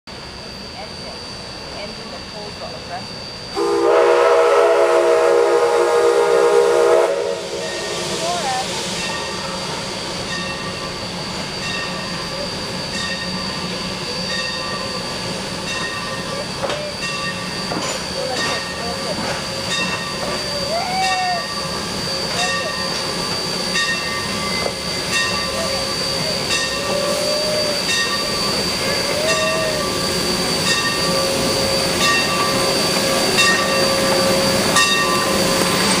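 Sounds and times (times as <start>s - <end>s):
steam locomotive running: 0.1s - 36.0s
ringing metallic clank: 15.6s - 21.3s.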